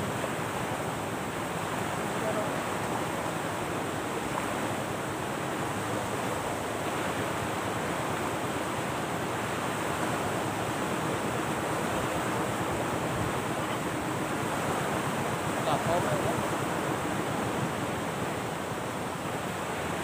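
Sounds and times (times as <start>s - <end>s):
surf rushing on shore: 0.0s - 20.0s.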